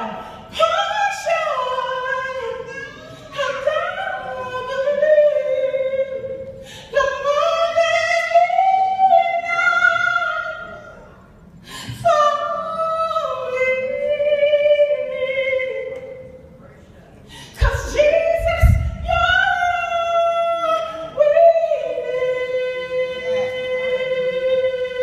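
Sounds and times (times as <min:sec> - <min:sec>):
woman singing unaccompanied: 0:00.0 - 0:10.9, 0:11.9 - 0:16.2, 0:17.6 - 0:25.0.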